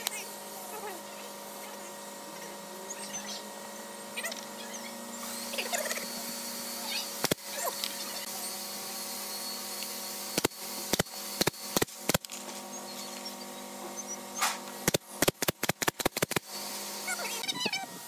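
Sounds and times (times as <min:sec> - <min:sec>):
steady background hum: 0:00.0 - 0:18.0
nail gun shots into wood: 0:14.4 - 0:16.5.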